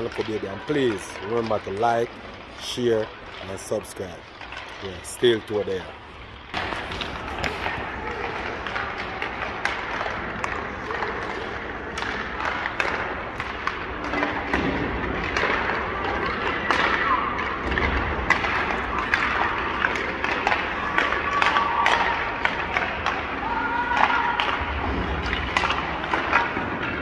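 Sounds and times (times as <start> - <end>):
murmur of voices echoing: 0.0 - 27.0
pucks hitting sticks and boards: 0.0 - 27.0
skates scraping on ice: 0.1 - 27.0.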